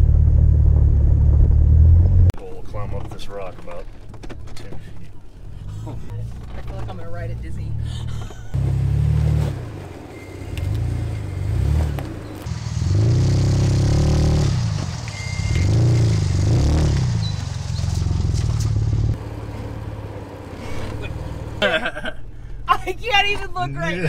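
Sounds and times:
engine revving under load: 0:08.5 - 0:21.8.

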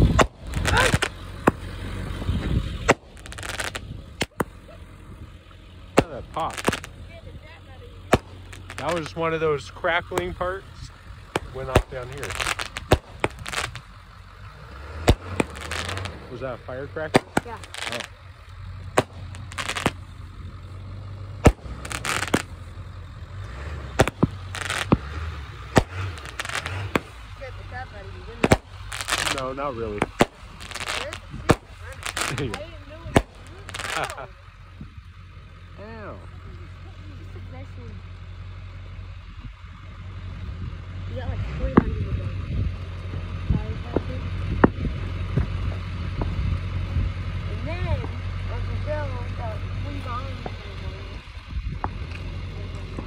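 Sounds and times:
crackling firework pops: 0:00.0 - 0:04.6, 0:06.0 - 0:07.0, 0:08.0 - 0:09.2, 0:10.1 - 0:10.4, 0:11.3 - 0:13.9, 0:15.0 - 0:16.2, 0:17.1 - 0:20.1, 0:21.4 - 0:22.7, 0:23.9 - 0:27.3, 0:28.4 - 0:34.3, 0:51.8 - 0:53.0
firework bangs: 0:00.0 - 0:04.7, 0:05.9 - 0:07.0, 0:08.0 - 0:09.3, 0:11.2 - 0:14.0, 0:15.0 - 0:16.2, 0:17.0 - 0:18.2, 0:18.9 - 0:20.2, 0:21.4 - 0:22.6, 0:23.9 - 0:34.3.

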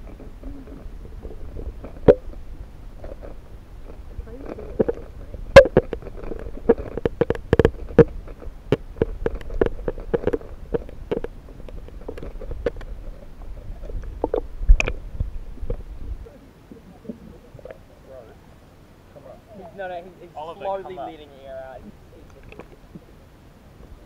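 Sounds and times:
low underwater rumble: 0:00.0 - 0:18.1.

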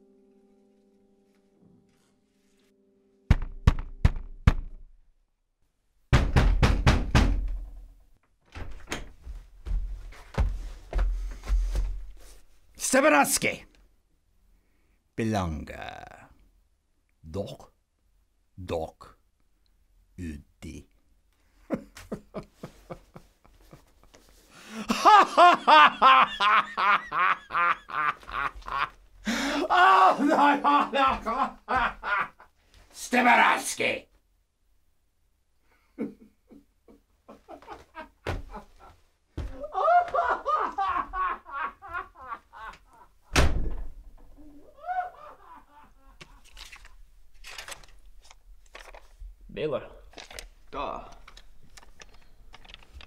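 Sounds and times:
knocking on a door: 0:03.3 - 0:04.8, 0:06.1 - 0:07.6
man laughing: 0:21.7 - 0:24.1, 0:24.7 - 0:32.5, 0:35.9 - 0:43.2, 0:44.4 - 0:46.5.

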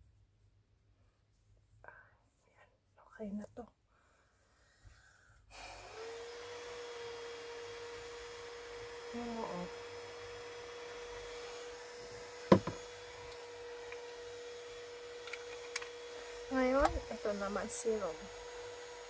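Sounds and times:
small fan humming: 0:05.6 - 0:19.0
sharp knock: 0:12.5 - 0:12.8.

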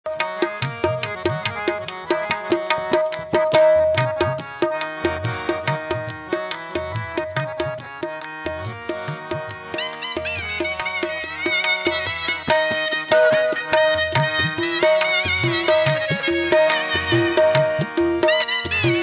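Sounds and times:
hand drum beat: 0:00.7 - 0:04.7, 0:12.5 - 0:19.0.

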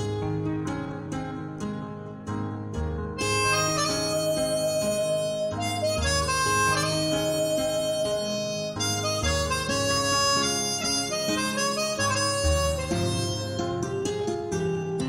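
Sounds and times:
backing track with bass line: 0:00.0 - 0:15.0
harmonica playing slow melody: 0:03.2 - 0:14.6.

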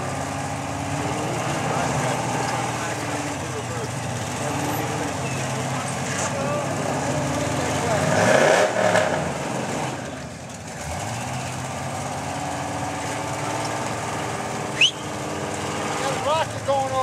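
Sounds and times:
off-road vehicle engine revving: 0:00.0 - 0:17.0
sharp rising chirp: 0:14.8 - 0:15.2.

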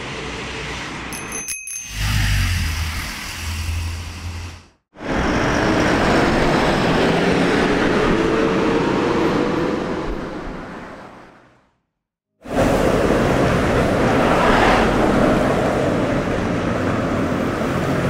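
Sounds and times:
traffic hum: 0:12.4 - 0:18.0
traffic rumble: 0:12.4 - 0:18.0.

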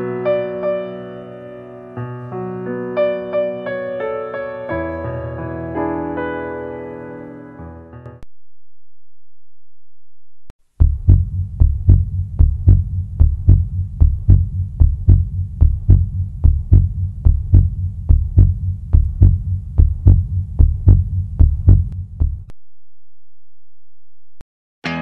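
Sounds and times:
heartbeat thumps: 0:10.8 - 0:22.5.

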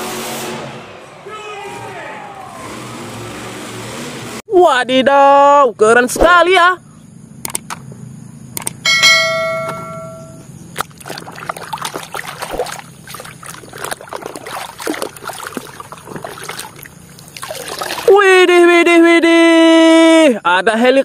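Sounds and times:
bell-like chime: 0:08.9 - 0:10.4
water sloshing in plastic basin: 0:10.8 - 0:18.2.

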